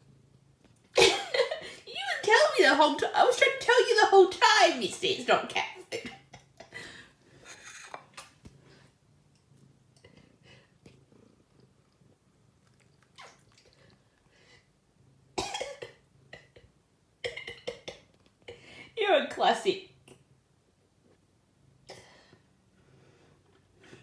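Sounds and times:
cat purring: 0.0 - 1.9, 4.3 - 16.9.

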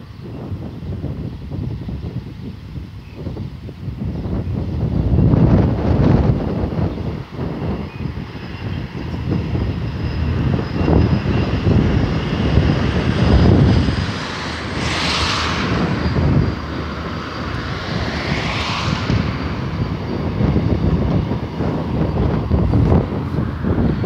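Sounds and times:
diesel locomotive engine drone: 0.0 - 24.0
wind buffeting microphone: 0.0 - 24.0
coaches rumbling on rails: 3.2 - 24.0
hissing rush: 5.6 - 24.0.

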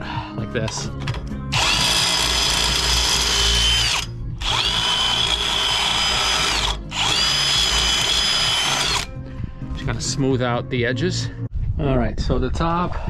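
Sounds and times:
cordless drill whining: 1.5 - 9.1.

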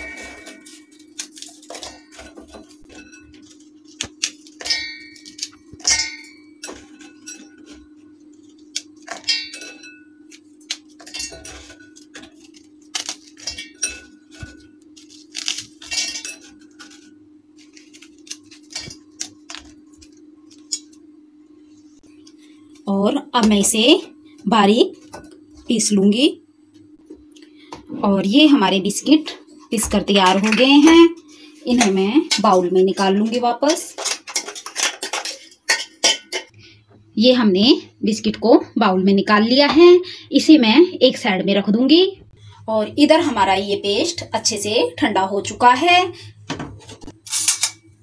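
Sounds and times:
low hum: 0.0 - 34.6
biscuit pieces clinking in metal jar: 10.7 - 19.7, 31.8 - 36.5.

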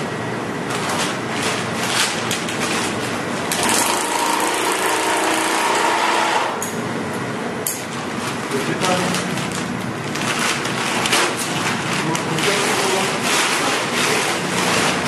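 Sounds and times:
sewing machine motor hum: 3.4 - 6.6
sewing machine stitching whine: 3.5 - 6.6.

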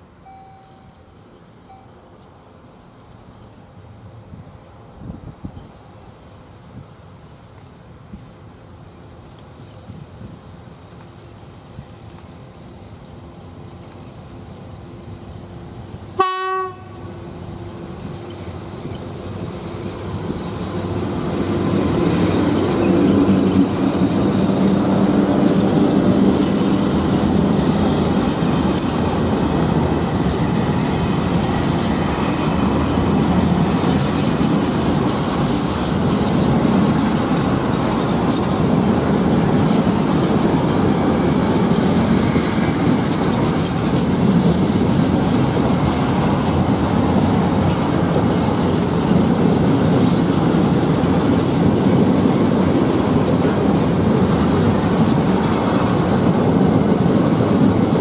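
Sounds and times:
locomotive horn blast: 16.2 - 17.1
freight wagons rolling rumble: 18.0 - 58.0
wheels clicking on rails: 18.0 - 58.0.

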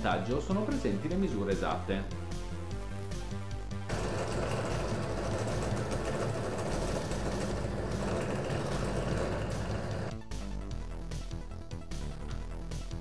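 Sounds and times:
drill bit cutting plastic: 3.9 - 10.1
drill press motor hum: 3.9 - 10.2.

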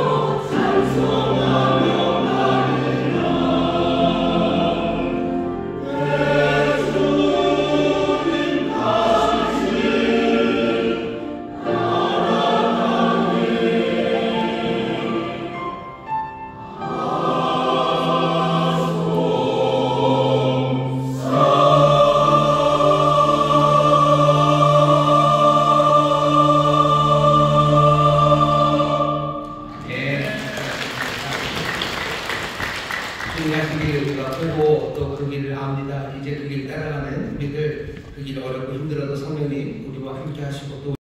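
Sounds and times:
group singing in unison: 0.0 - 31.3
keyboard: 0.0 - 41.0.

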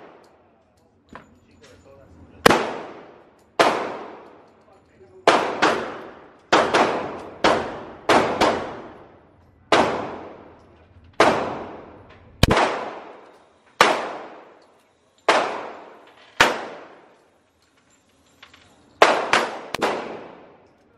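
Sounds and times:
handgun shots echoing indoors: 9.7 - 17.2, 19.0 - 20.8.

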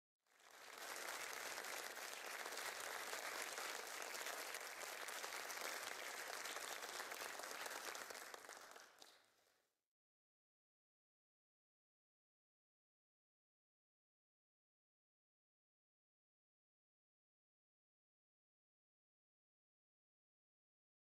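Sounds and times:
audience applauding: 0.3 - 9.4.

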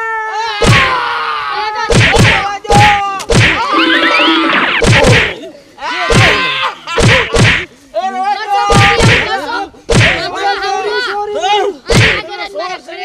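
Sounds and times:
people yelling and crying: 0.0 - 13.0
loud whacks of blows: 0.6 - 1.0, 1.9 - 3.7, 4.7 - 5.4, 6.1 - 7.7, 8.7 - 10.3, 11.9 - 12.2.

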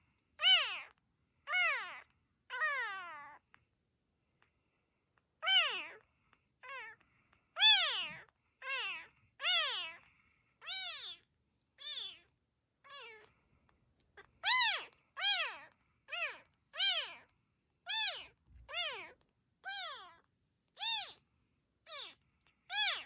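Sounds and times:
kitten mewing: 5.4 - 6.0, 10.6 - 11.2, 11.8 - 13.3, 14.2 - 17.3, 17.9 - 20.2, 20.8 - 21.2, 21.9 - 23.0.

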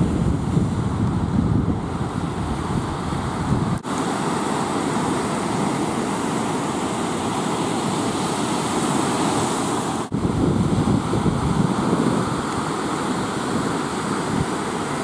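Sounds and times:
wind buffeting microphone: 0.0 - 3.9, 7.3 - 15.0
ocean surf breaking: 0.0 - 15.0.

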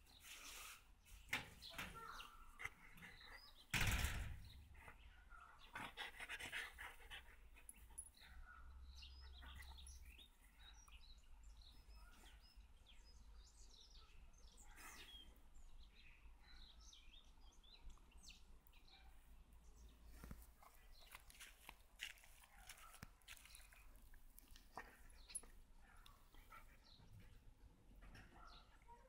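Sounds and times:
dog panting: 4.7 - 10.2, 24.5 - 27.6.

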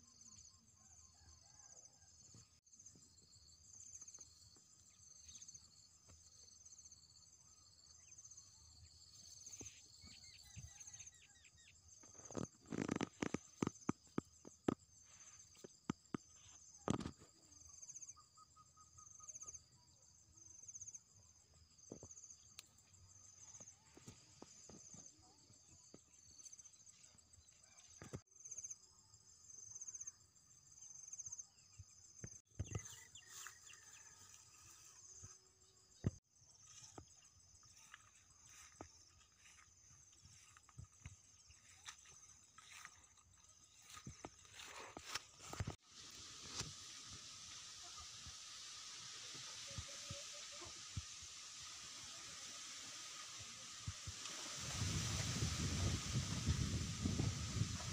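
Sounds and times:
high-pitched insect chorus: 0.0 - 57.9
grass and plant stems rustling: 37.6 - 57.9.

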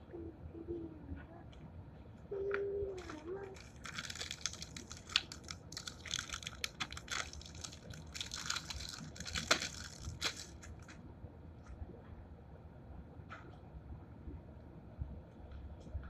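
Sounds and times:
plastic packaging crinkling: 2.9 - 10.9.

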